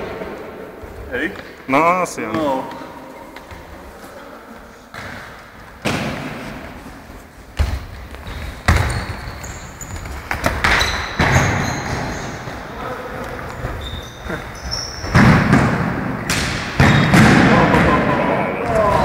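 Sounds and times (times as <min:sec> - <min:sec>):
footsteps: 0:00.0 - 0:15.8
shoes squeaking on floor: 0:06.9 - 0:15.7
football thumping on gym floor: 0:07.6 - 0:09.2.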